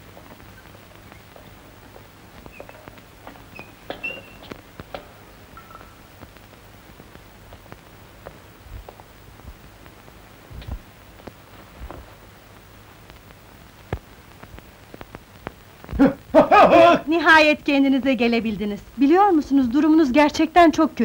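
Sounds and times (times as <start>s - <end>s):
faint hiss: 0.0s - 21.0s
soft low thumps: 7.2s - 12.1s.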